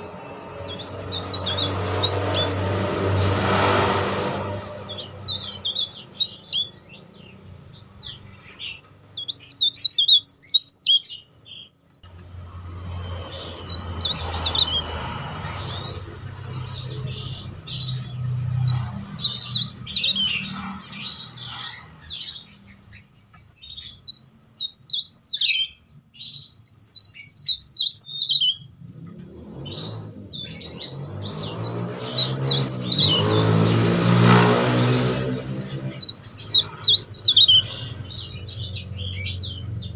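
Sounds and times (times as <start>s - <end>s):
bird twittering: 0.0s - 3.3s, 4.3s - 39.9s
low engine-like rumble: 12.0s - 23.8s, 28.6s - 32.0s.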